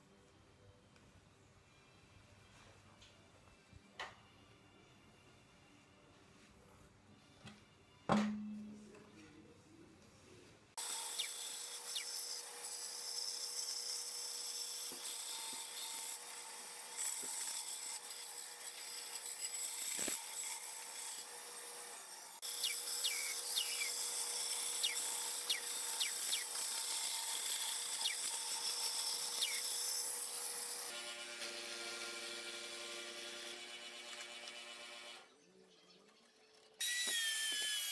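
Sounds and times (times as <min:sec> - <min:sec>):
band saw cutting wood: 0:10.8 - 0:35.2, 0:36.8 - 0:37.9.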